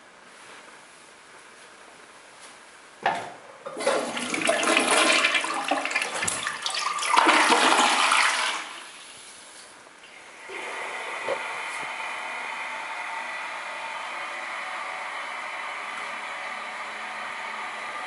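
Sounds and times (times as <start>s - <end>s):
water rushing into toilet bowl: 3.7s - 9.2s.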